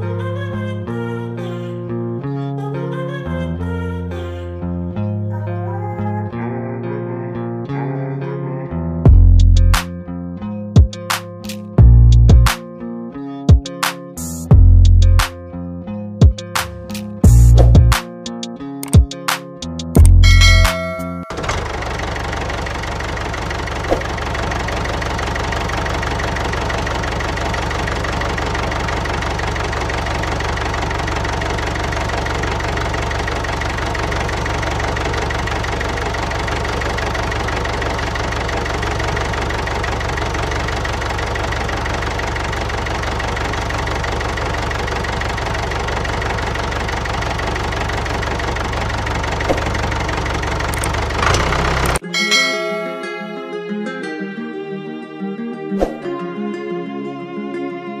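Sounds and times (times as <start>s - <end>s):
tractor engine idling: 20.0s - 52.9s.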